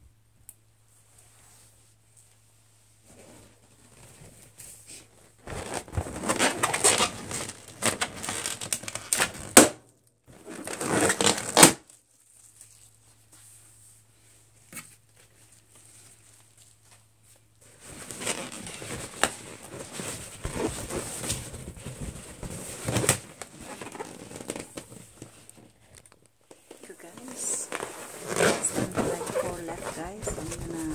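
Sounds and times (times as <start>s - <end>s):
balloons squeaking and scraping: 4.9s - 9.6s, 10.3s - 13.0s, 17.6s - 25.7s, 26.5s - 30.9s.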